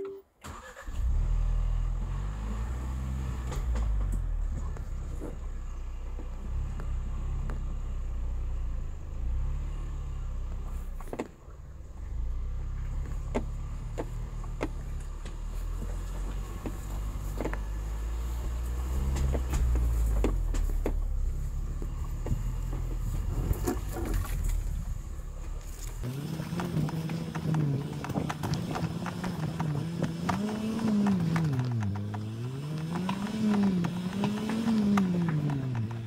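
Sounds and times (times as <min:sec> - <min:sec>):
engine running at low revs: 0:00.9 - 0:36.0
rocks clicking under tyres: 0:03.4 - 0:08.6, 0:10.4 - 0:36.0.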